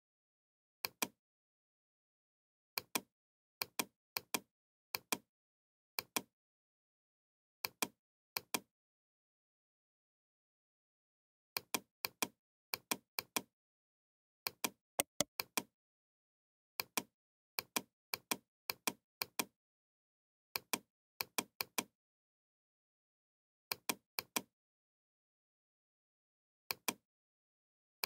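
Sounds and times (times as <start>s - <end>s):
computer mouse clicking: 6.0s - 6.3s, 14.5s - 15.7s, 23.7s - 24.5s, 26.7s - 27.0s.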